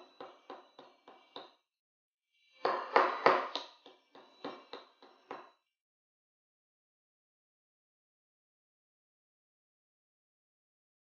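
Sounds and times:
hammer tapping nail on ceramic: 0.0 - 1.6, 2.6 - 5.6.

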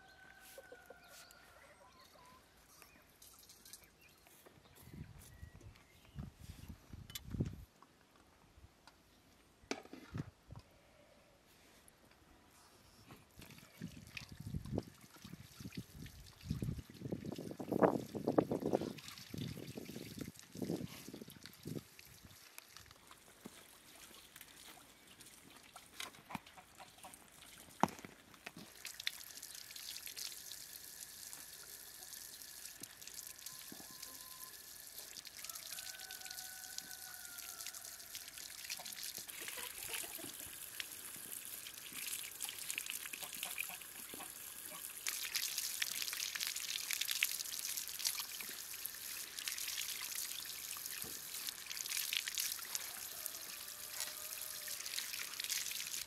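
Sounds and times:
water splashing over vegetables: 13.4 - 56.0.

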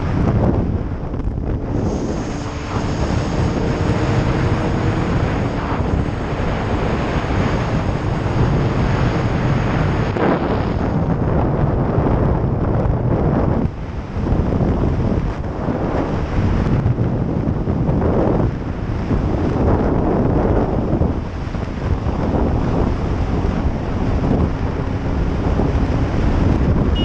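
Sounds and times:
motorcycle engine running: 0.0 - 11.1
wind rush over microphone: 0.0 - 27.0.

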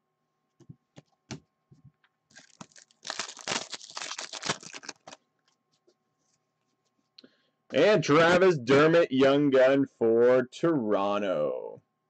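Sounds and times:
wrapper tearing and crinkling: 2.3 - 5.2.

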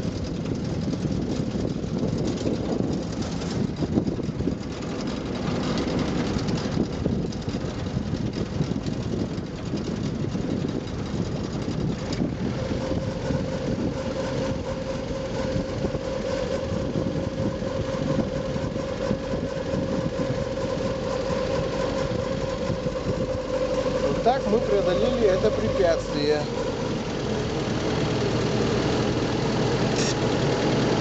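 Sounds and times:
steady whine: 0.0 - 31.0
vehicle engine running: 0.0 - 31.0.

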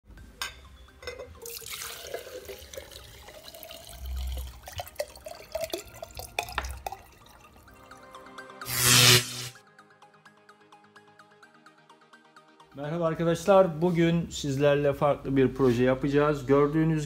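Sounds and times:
liquid pouring and splashing: 1.4 - 7.7.

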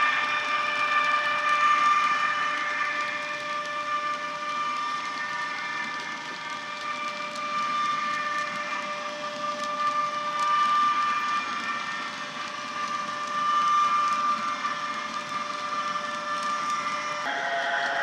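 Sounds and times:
electric locomotive whine from speaker: 0.0 - 18.0.

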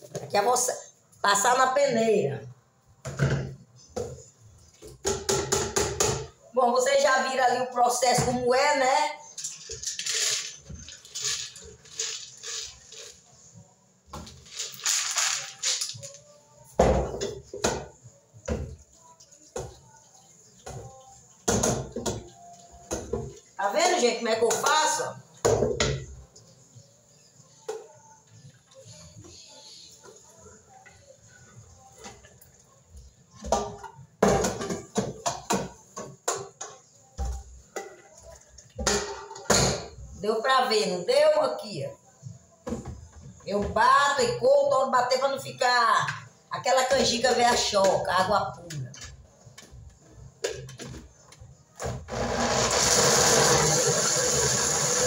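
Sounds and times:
corn kernels rattling: 9.4 - 13.1, 14.5 - 16.0.

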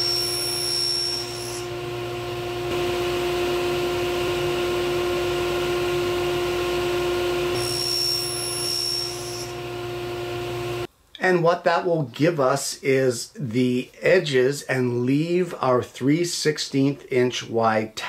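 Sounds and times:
saw blade cutting wood whine: 0.0 - 10.9
table saw humming: 0.0 - 10.9.

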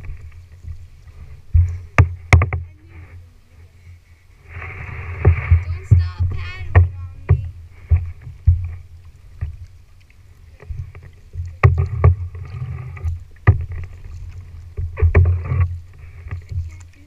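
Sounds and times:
kayak paddles splashing: 0.0 - 17.0
low rumble of water on hull: 0.0 - 17.0
paddles knocking on plastic hull: 1.5 - 2.8, 5.2 - 9.8, 10.6 - 17.0.

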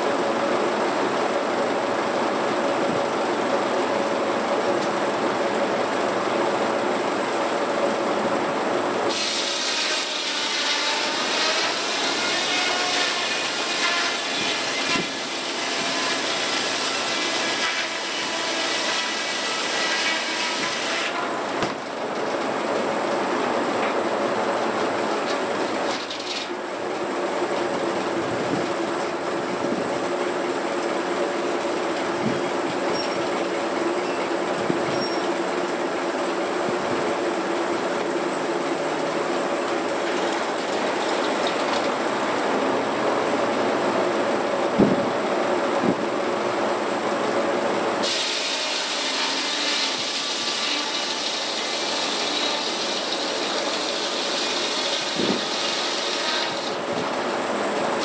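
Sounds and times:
sawmill running without cutting: 0.0 - 58.0
saw blade cutting log: 9.1 - 22.0, 25.2 - 26.6, 48.0 - 56.9.

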